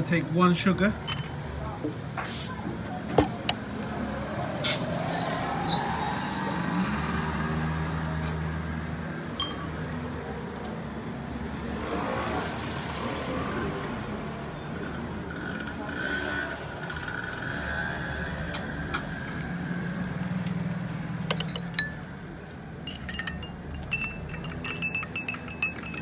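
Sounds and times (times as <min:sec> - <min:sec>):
street hum: 0:00.0 - 0:26.0
glassware clinking: 0:01.0 - 0:01.4, 0:21.3 - 0:22.2, 0:22.8 - 0:26.0.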